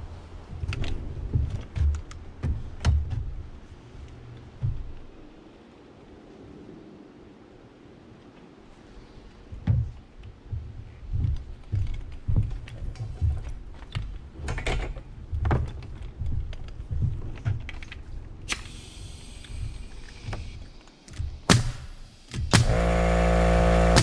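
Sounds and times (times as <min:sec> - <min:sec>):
boots stepping on wooden boards: 0:00.0 - 0:05.4, 0:09.5 - 0:14.4, 0:15.0 - 0:18.2, 0:19.6 - 0:23.1
short hiss: 0:18.5 - 0:21.0.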